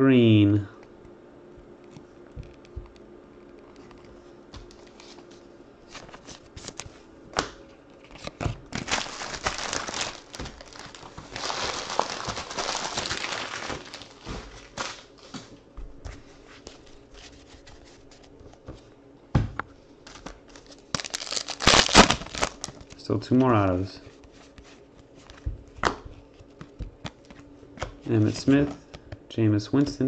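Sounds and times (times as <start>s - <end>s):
plastic wrappers crinkling: 8.0s - 15.4s, 20.1s - 23.3s.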